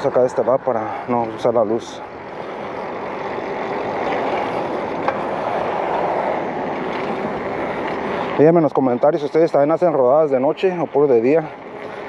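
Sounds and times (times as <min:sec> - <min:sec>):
bike tyres rolling on pavement: 0:00.0 - 0:12.0.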